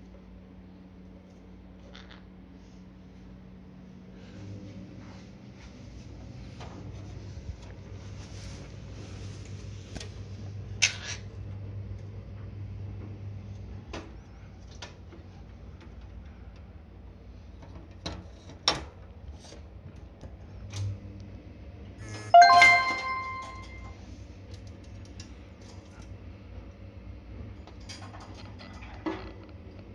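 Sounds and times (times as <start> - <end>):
small brass bell ringing: 22.4 - 23.9.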